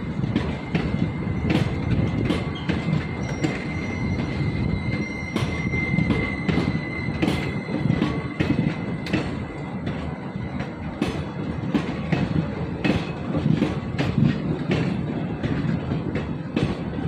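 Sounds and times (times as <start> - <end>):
heavy train rumble: 0.0 - 17.0
train wheels clacking over rail joints: 0.0 - 17.0
high wheel squeal: 0.6 - 10.8.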